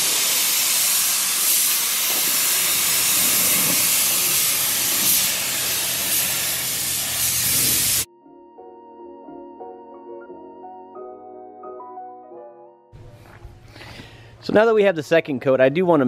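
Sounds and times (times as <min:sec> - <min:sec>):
spray gun hissing: 0:00.0 - 0:08.1.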